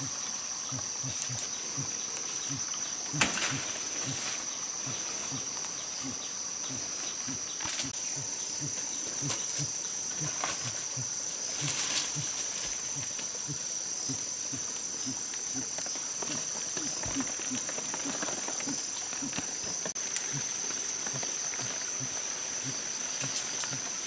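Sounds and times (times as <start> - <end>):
insects droning: 0.0 - 24.0
rustling crackles: 14.6 - 24.0.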